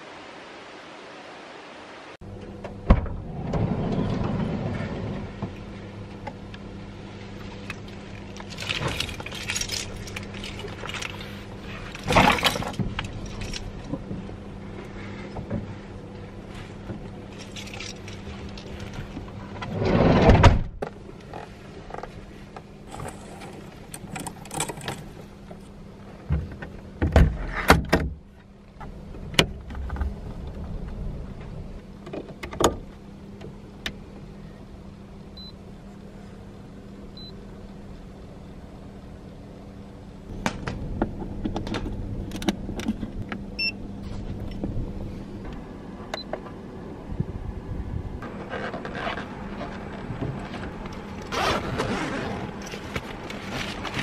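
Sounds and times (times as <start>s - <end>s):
steady low hum: 2.2s - 54.0s
gear rustling and knocking: 7.4s - 14.4s, 16.5s - 19.8s, 20.8s - 26.8s, 48.2s - 54.0s.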